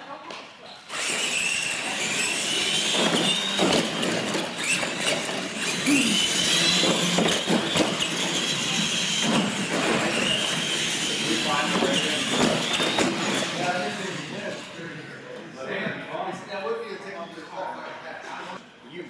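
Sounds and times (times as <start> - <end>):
toy truck electric motors whining: 0.8 - 15.3.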